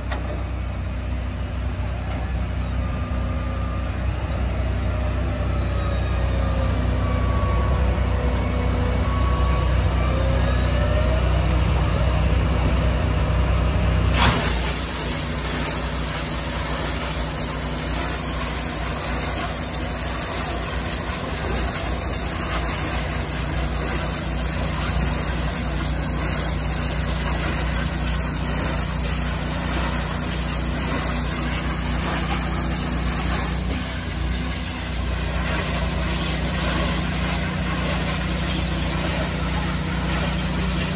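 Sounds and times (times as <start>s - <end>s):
engine and pump humming: 0.0s - 40.9s
high-pressure water spray hissing: 14.2s - 40.9s.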